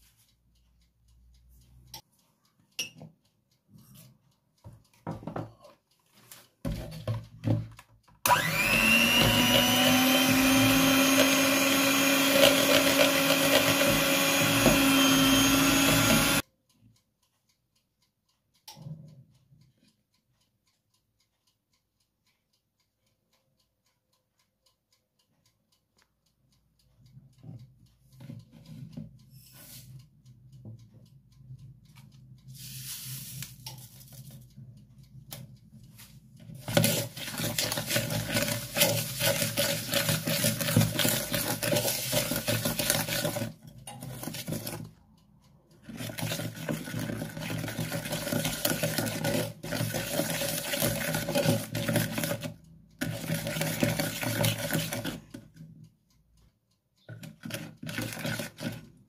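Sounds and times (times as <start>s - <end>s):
wooden spoon scraping plastic bowl: 9.0s - 16.4s, 36.6s - 44.9s, 45.8s - 55.2s, 57.1s - 58.9s.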